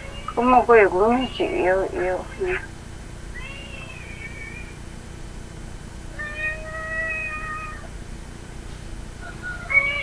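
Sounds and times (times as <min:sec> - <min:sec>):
woman singing through phone speaker: 0:00.3 - 0:02.6.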